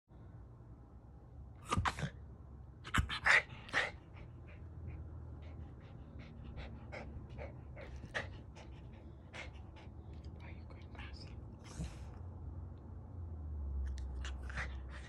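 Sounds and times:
dog panting: 0:03.0 - 0:12.2, 0:14.2 - 0:15.0.

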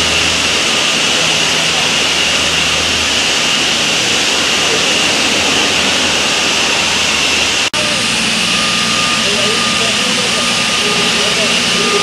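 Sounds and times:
construction machinery roar: 0:00.0 - 0:12.0
low engine hum: 0:00.0 - 0:12.0.

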